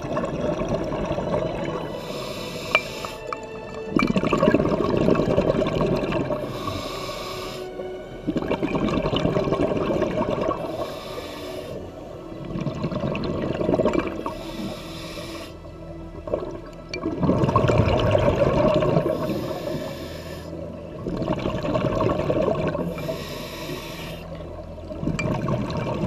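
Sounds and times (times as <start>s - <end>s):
bubbling exhaust: 0.0s - 11.8s, 12.4s - 24.3s
regulator inhale hiss: 1.9s - 3.4s, 6.4s - 7.8s, 10.6s - 11.9s, 14.2s - 15.7s, 19.1s - 20.6s, 22.9s - 24.4s.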